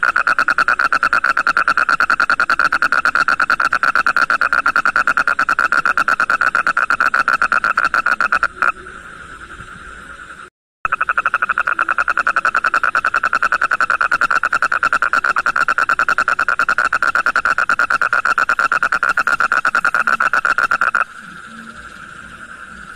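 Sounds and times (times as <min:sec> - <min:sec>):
toad trilling: 0:00.0 - 0:08.9, 0:10.9 - 0:22.9.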